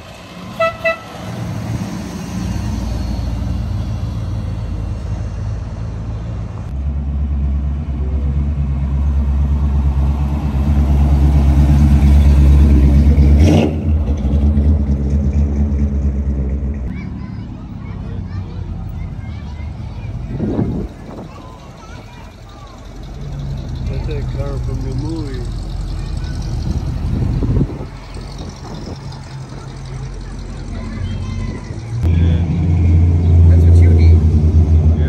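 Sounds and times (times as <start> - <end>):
pickup truck engine passing: 0.0 - 35.0
car horn toots: 0.6 - 1.2.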